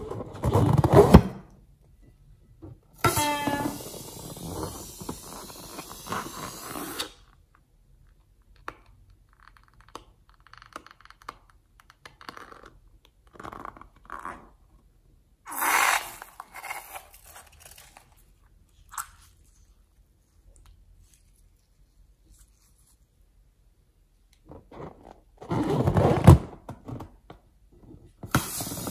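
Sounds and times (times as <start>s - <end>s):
liquid spurting from balloon: 28.4s - 28.9s.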